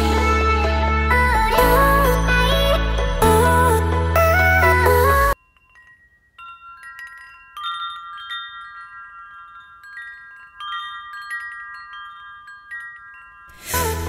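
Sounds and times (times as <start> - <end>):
wind-chime shimmer: 1.5 - 14.0
bell-like chime tones: 5.3 - 14.0.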